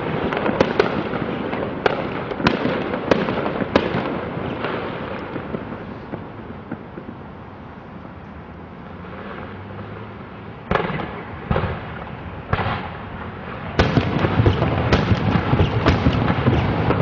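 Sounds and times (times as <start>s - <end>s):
rapid firecracker cracks: 0.0s - 7.1s, 10.7s - 17.0s
firework bangs: 0.0s - 7.4s, 10.6s - 17.0s.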